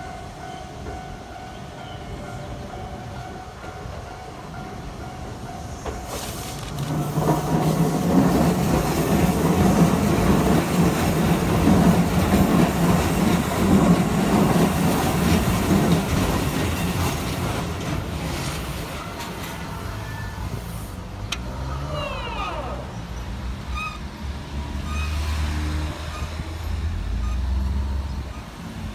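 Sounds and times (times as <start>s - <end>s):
train wheels rumbling on rails: 0.0s - 28.9s.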